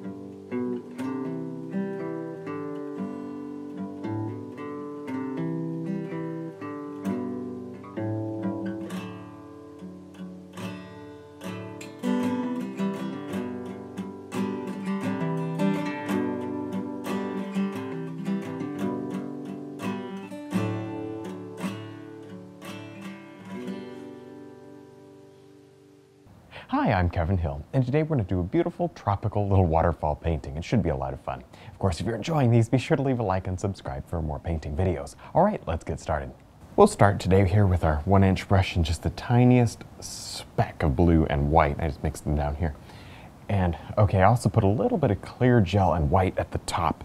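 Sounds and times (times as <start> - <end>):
acoustic guitar strumming chords: 0.0 - 26.3.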